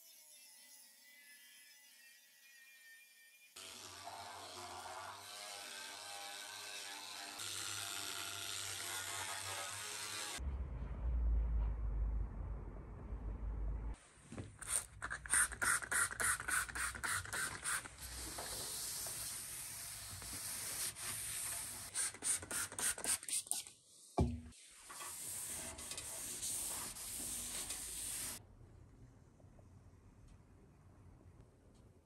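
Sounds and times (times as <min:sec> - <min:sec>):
paper towel wiping on steel: 0:14.6 - 0:23.3, 0:24.9 - 0:28.4.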